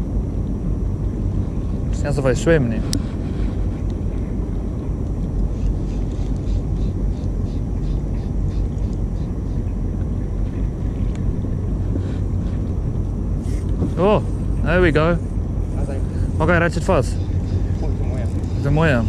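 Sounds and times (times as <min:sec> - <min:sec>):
boat motor rumbling: 0:00.0 - 0:19.0
faint even ticking: 0:12.2 - 0:19.0.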